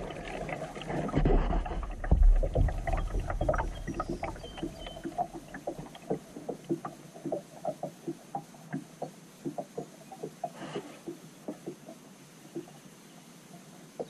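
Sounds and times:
water plinks and taps: 2.0 - 12.8.

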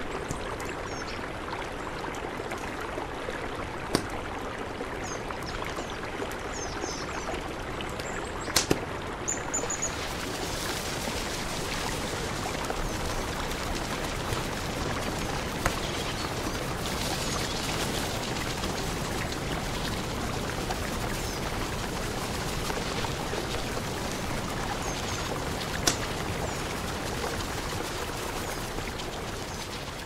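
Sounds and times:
mountain river rushing: 0.0 - 30.0
campfire crackling: 7.9 - 30.0.

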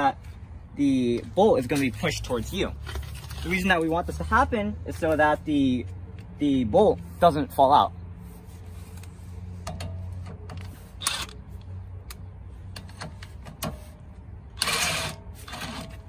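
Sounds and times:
impact wrench bursts: 10.9 - 11.4, 14.5 - 16.0.

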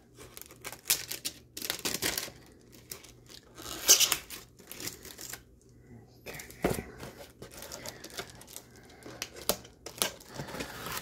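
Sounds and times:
packing tape tearing: 0.3 - 5.4.

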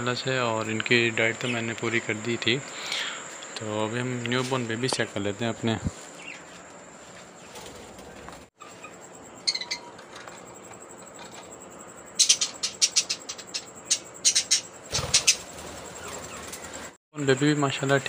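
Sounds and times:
budgerigar chirping: 8.6 - 10.0, 12.2 - 15.4.

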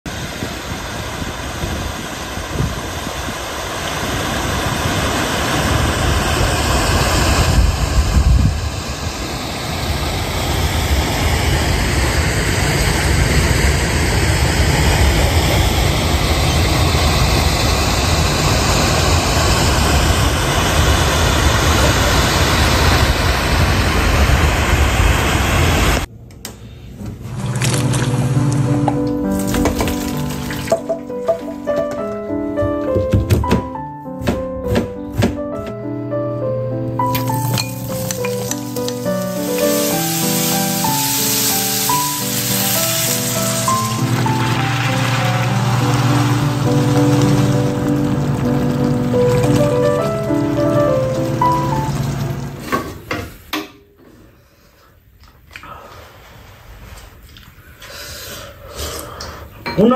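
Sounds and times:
stream rushing over weir: 37.2 - 52.6
deep water rumble: 42.2 - 52.8.

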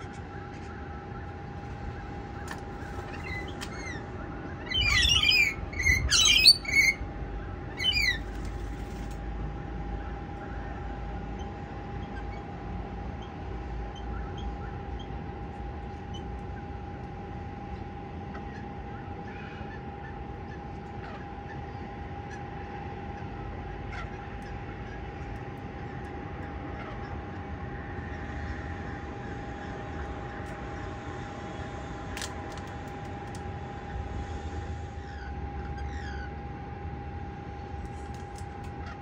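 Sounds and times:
faint steady hum: 0.0 - 39.0
faint bird chirps: 0.1 - 7.0, 7.7 - 8.5
lorikeets screeching: 1.1 - 7.1, 7.7 - 8.3, 35.0 - 36.4.

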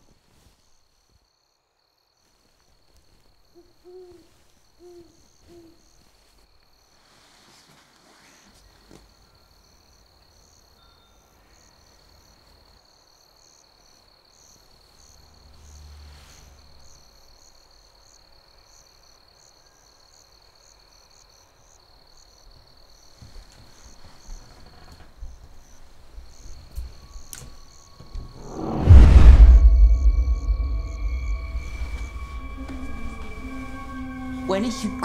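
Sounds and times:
crickets chirping: 8.3 - 35.0
low rumble: 28.1 - 35.0.

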